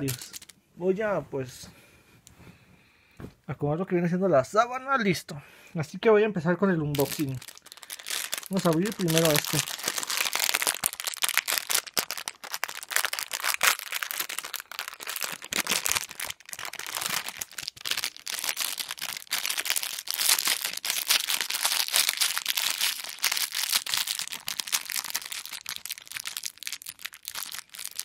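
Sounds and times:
plastic packet crinkling: 0.0 - 0.5, 6.9 - 28.0.

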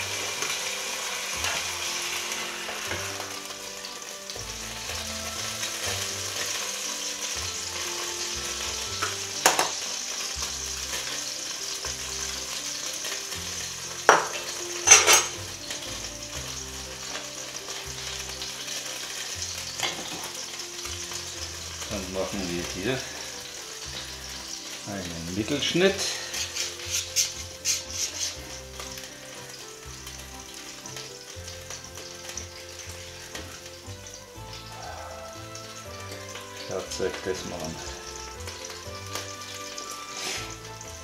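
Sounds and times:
kitchen utensils clacking: 0.0 - 3.6, 5.6 - 15.8, 17.0 - 29.6
food sizzling in a pan: 0.0 - 41.0.

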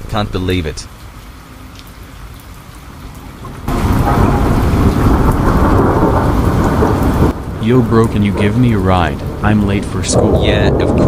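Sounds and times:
rain falling: 0.0 - 11.0
thunder rumbling: 3.4 - 11.0.

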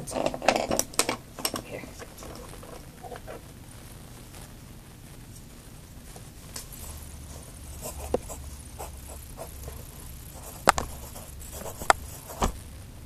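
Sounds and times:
pencil scratching on paper: 7.3 - 12.5.

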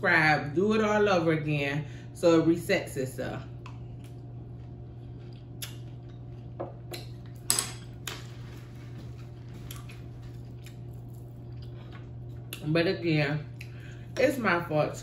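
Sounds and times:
faint chewing: 3.6 - 7.4, 8.0 - 12.6.

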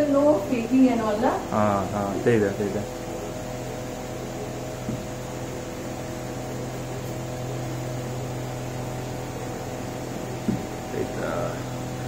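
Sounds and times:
appliance humming: 0.0 - 12.0.

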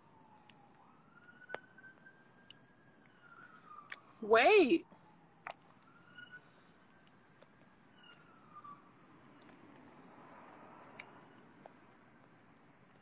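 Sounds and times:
cricket trill: 0.0 - 13.0.

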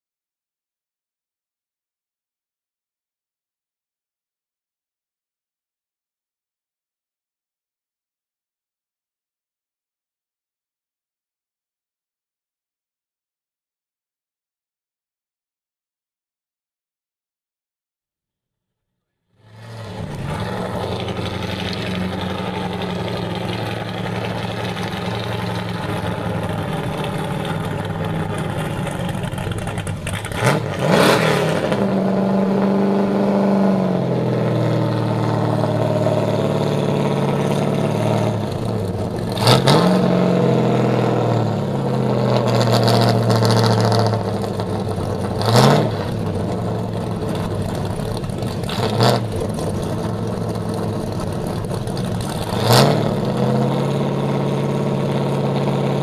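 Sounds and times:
car engine idling and revving: 19.3 - 56.0.

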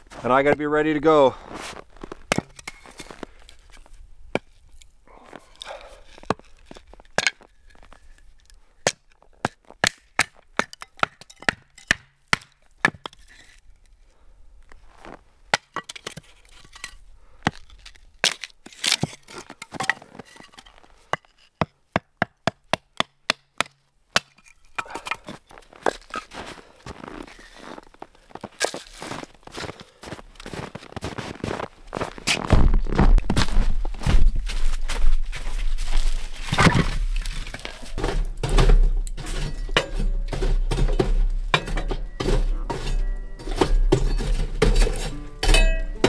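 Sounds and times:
axe splitting wood: 8.8 - 13.3, 21.1 - 26.1, 36.5 - 46.0.

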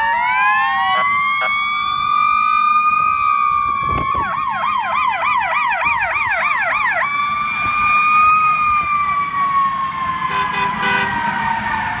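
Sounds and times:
fast yelp siren: 0.0 - 12.0
steady siren tone: 0.0 - 12.0
short horn blasts: 10.3 - 11.2.

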